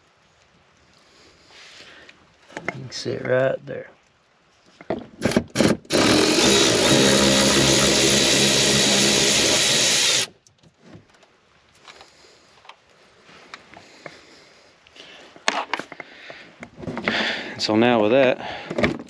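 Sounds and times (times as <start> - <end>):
cordless ratchet running: 5.6 - 10.3.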